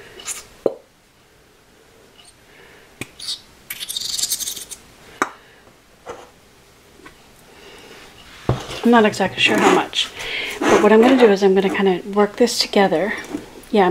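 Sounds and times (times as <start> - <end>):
glue sputtering from bottle nozzle: 3.2 - 4.8.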